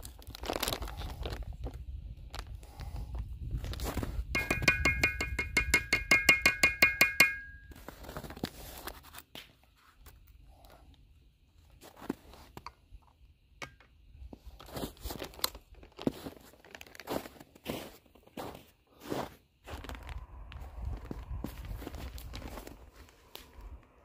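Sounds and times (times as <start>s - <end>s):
metal bird feeder rattling: 4.4s - 7.5s
handling knocks: 4.4s - 7.7s
footsteps crunching in snow: 16.0s - 23.6s.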